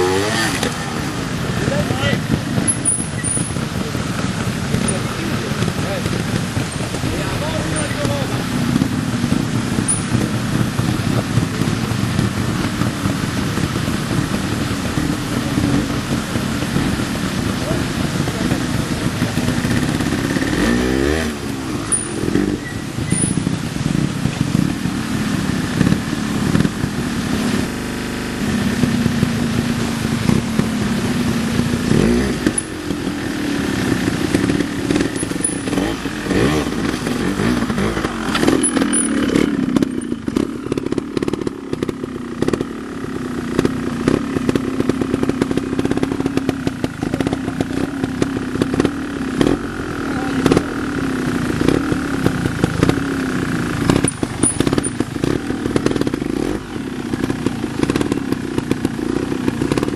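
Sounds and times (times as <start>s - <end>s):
motorcycle engine revving: 0.0s - 59.9s
clicks and clatter: 36.8s - 42.7s.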